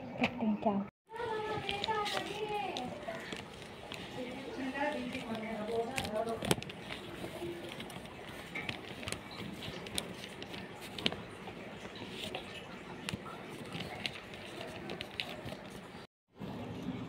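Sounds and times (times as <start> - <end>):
paper and plastic bottle handling: 1.1 - 16.1.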